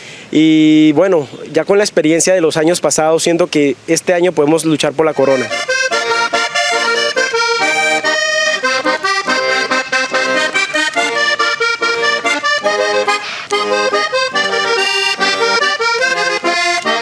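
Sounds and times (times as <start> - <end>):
button accordion melody: 5.0 - 17.0.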